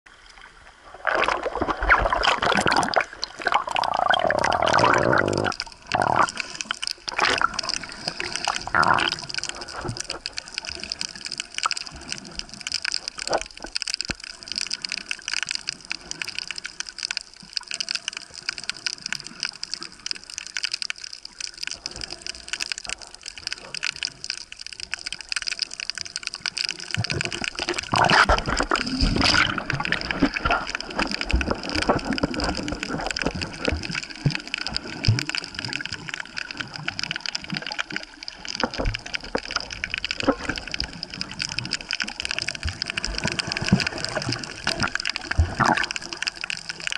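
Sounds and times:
water splashing and sloshing: 0:00.1 - 0:46.9
muffled underwater noise: 0:01.1 - 0:12.1.

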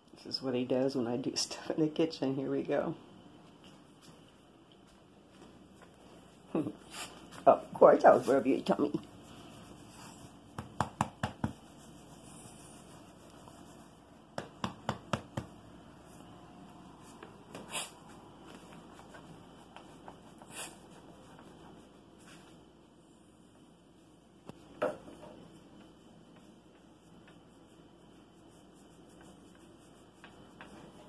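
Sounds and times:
hand rubbing dog fur: 0:05.3 - 0:31.0.

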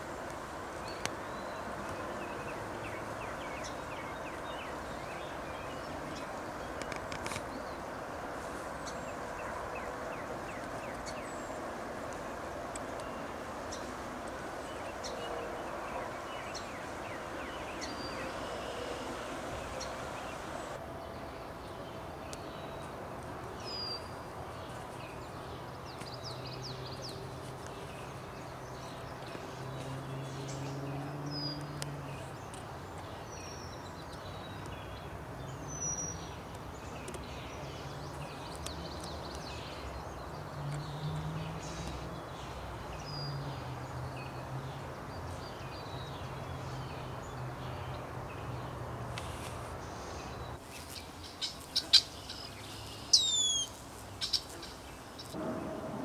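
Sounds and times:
small birds chirping: 0:00.8 - 0:55.4
low hum: 0:55.4 - 0:56.0.

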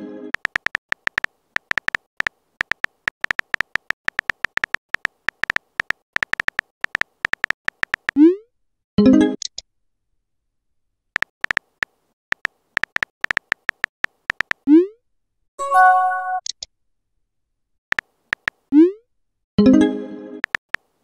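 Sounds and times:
phone keyboard taps: 0:00.4 - 0:08.2, 0:11.2 - 0:14.6, 0:17.9 - 0:18.6, 0:20.4 - 0:20.9
chime-like alert tone: 0:15.6 - 0:16.4.

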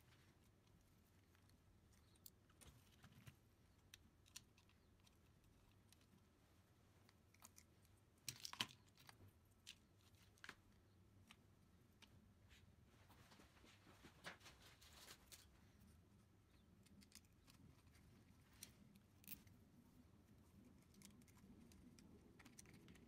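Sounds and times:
clicks of small plastic parts: 0:01.4 - 0:06.1, 0:07.0 - 0:10.6, 0:16.8 - 0:19.6, 0:20.6 - 0:23.0.

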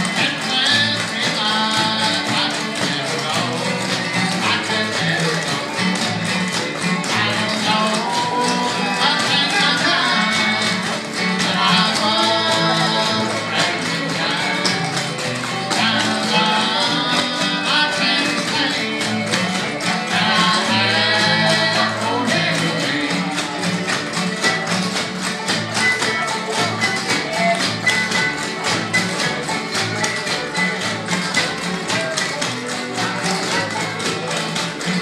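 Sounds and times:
bluegrass band playing: 0:00.0 - 0:35.0
quick tapping beat: 0:00.0 - 0:35.0.

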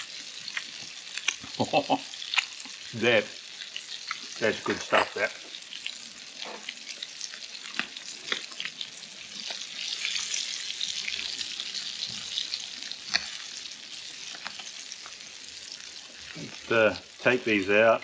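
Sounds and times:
fish sizzling in oil: 0:00.0 - 0:18.0.

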